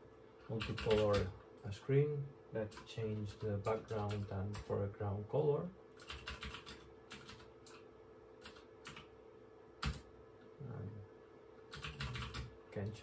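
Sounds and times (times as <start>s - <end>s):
faint steady hum: 0.0s - 13.0s
keyboard keys clicking: 0.6s - 1.3s, 6.0s - 7.8s, 11.7s - 12.5s.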